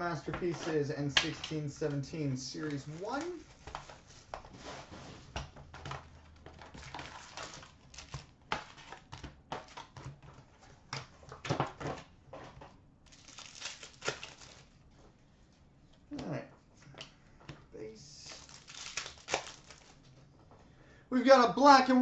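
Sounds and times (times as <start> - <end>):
foil packs rustling and crinkling: 6.2 - 10.2, 13.1 - 14.8, 18.2 - 20.1.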